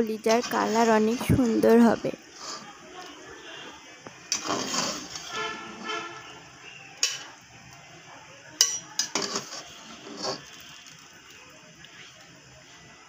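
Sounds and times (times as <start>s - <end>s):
metal spoon scraping steel pot: 4.3s - 6.1s, 8.6s - 11.0s.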